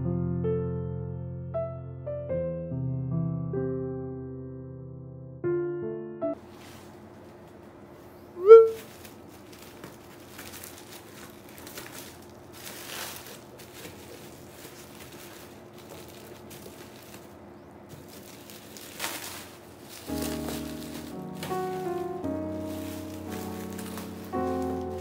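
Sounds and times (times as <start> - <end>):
bubble wrap rustling and crinkling: 6.4 - 25.0
faint steady hum: 6.4 - 25.0.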